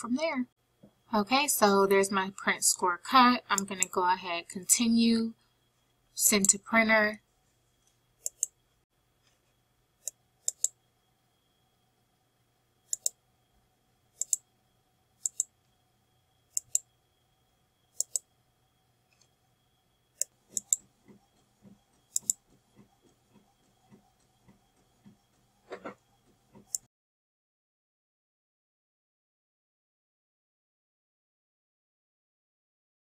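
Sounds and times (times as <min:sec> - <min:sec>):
computer mouse clicking: 0:03.5 - 0:04.0, 0:06.4 - 0:06.6, 0:08.2 - 0:08.6, 0:10.0 - 0:10.8, 0:12.9 - 0:13.2, 0:14.2 - 0:14.4, 0:15.2 - 0:15.5, 0:16.5 - 0:16.9, 0:18.0 - 0:18.3, 0:20.2 - 0:26.9.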